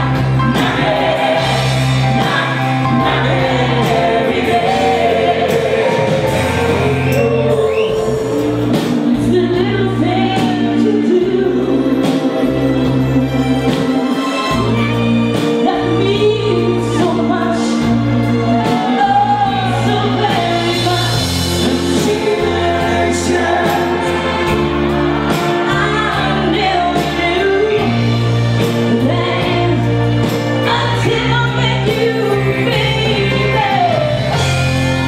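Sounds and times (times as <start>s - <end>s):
live band music: 0.0s - 35.0s
woman singing into microphone: 7.9s - 12.6s, 14.6s - 24.0s, 25.6s - 28.2s, 28.9s - 34.4s.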